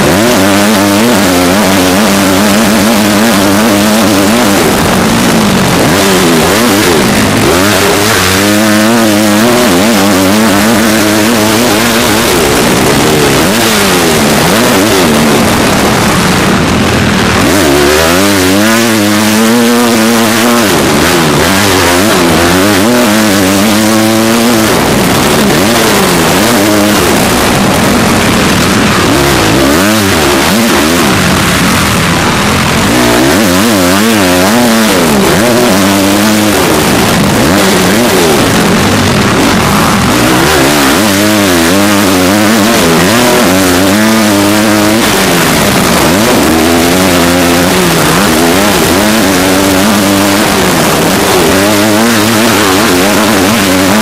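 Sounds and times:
motocross bike engine revving: 0.0s - 54.0s.

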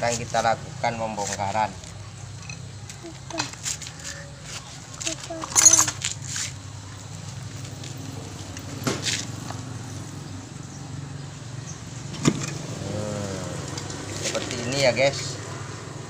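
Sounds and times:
metal parts twisted apart: 5.0s - 6.2s.

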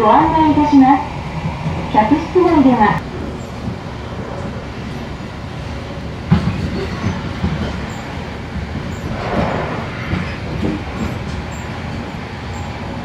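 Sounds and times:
train wheels rumbling on rail: 0.0s - 13.0s
rush of noise: 9.0s - 12.0s.

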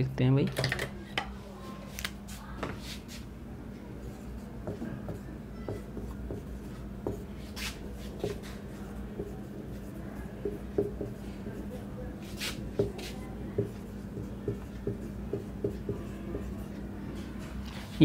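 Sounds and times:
steady low hum: 0.0s - 18.0s
marker squeaking on whiteboard: 4.1s - 11.2s, 12.3s - 16.8s.

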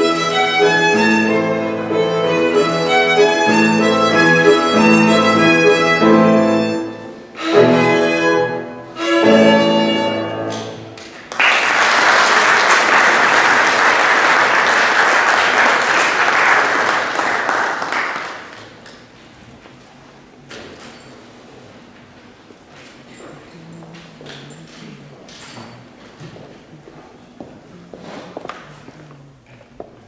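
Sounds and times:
violin with piano: 0.0s - 11.0s
audience applauding: 11.0s - 18.9s.

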